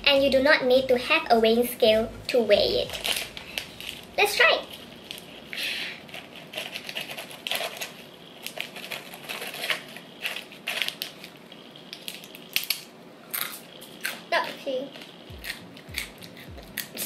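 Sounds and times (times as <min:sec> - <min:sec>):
plastic wrapper crinkling: 0:02.8 - 0:14.2.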